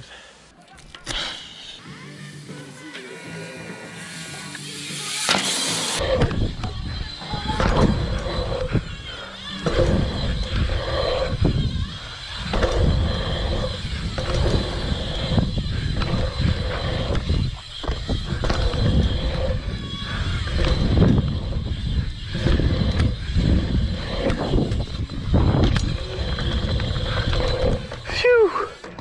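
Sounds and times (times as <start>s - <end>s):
tyres rumbling on dirt: 4.9s - 28.2s
wind buffeting microphone: 6.0s - 28.1s.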